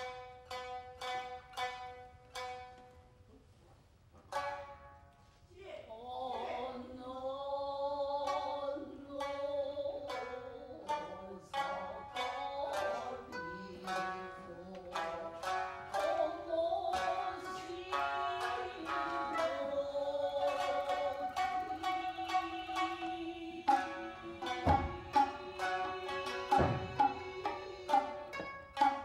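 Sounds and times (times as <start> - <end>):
plucked shamisen notes: 0.0 - 3.2, 4.2 - 5.4, 8.1 - 29.0.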